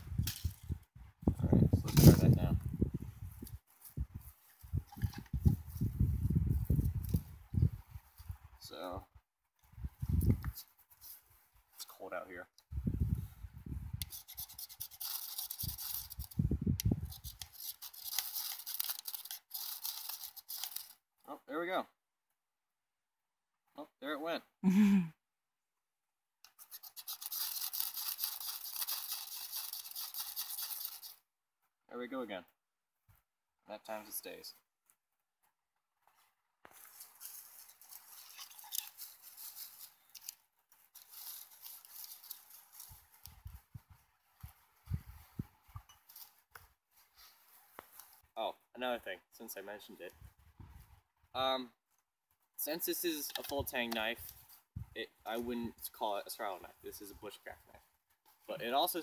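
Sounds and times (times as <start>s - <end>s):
small fire crackling: 14.0s - 21.1s, 35.7s - 48.4s
knife scraping ferro rod: 17.0s - 21.0s, 26.5s - 31.2s.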